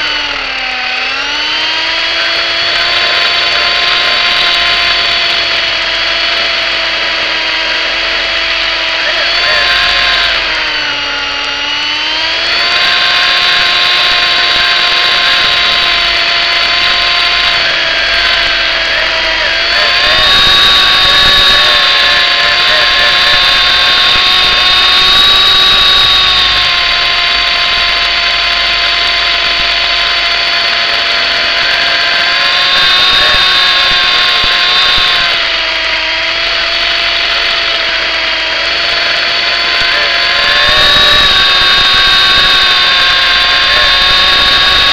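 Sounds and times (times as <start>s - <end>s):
rc helicopter motor whine: 0.0s - 44.9s.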